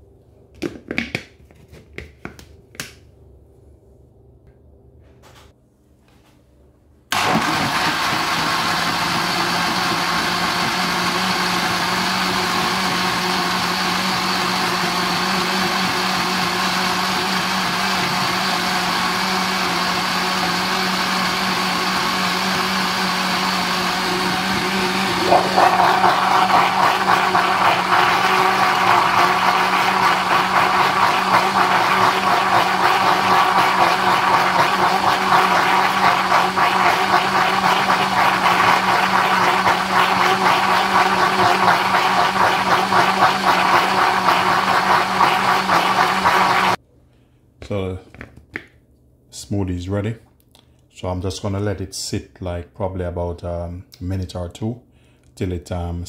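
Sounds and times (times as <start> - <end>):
blender motor running: 7.1 - 46.8.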